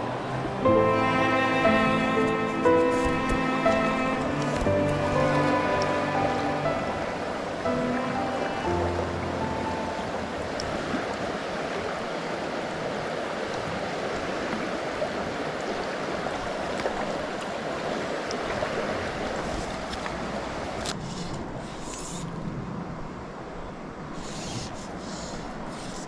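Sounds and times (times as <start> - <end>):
river flowing over stones: 0.0 - 22.1.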